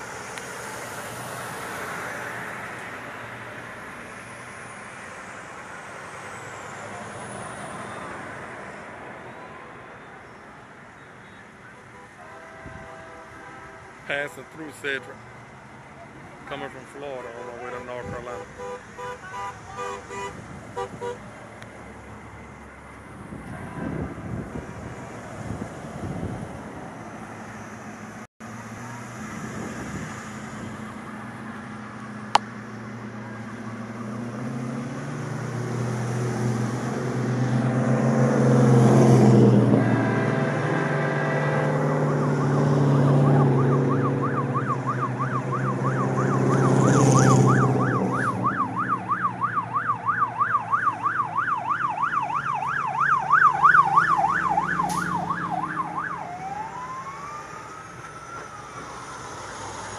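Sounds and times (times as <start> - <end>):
passing traffic: 0.0 - 59.9
siren yelping: 39.8 - 59.9.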